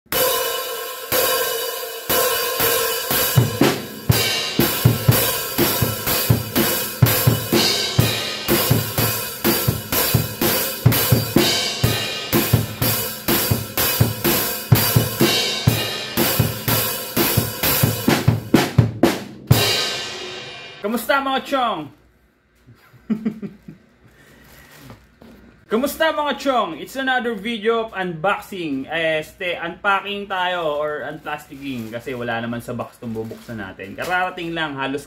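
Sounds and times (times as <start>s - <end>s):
drum kit beats: 0.0s - 21.4s.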